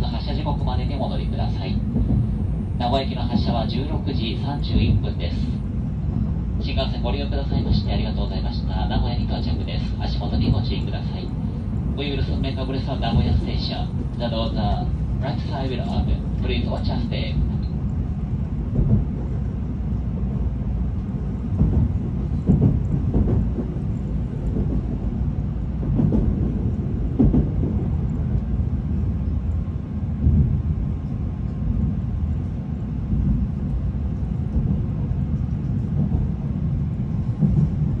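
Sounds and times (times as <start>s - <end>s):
train rumbling on rails: 0.0s - 38.0s.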